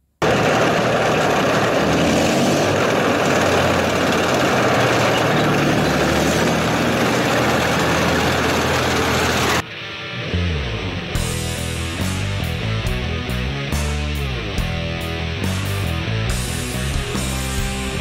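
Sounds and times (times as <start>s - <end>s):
diesel engine droning: 0.2s - 9.6s, 10.2s - 18.0s.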